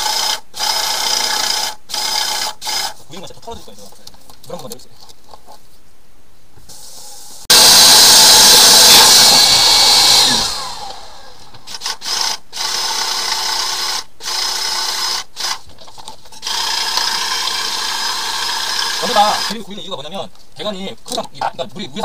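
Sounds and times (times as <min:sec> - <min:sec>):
drill spinning drain cable: 0:00.0 - 0:03.0, 0:07.5 - 0:15.6, 0:16.3 - 0:19.6.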